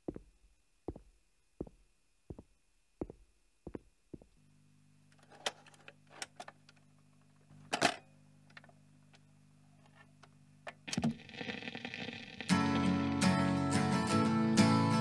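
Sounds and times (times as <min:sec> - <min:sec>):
steady low hum: 0:00.0 - 0:11.2.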